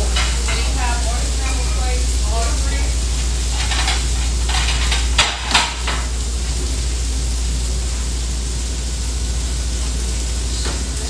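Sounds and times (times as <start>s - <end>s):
plates clattering and clinking: 0.0s - 0.8s, 3.5s - 6.1s
low kitchen hum: 0.0s - 11.0s.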